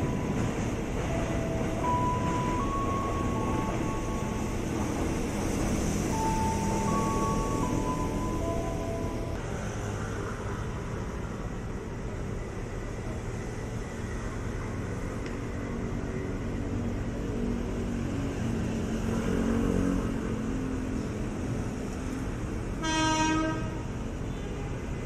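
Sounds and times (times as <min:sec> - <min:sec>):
train horn: 0:22.8 - 0:24.8.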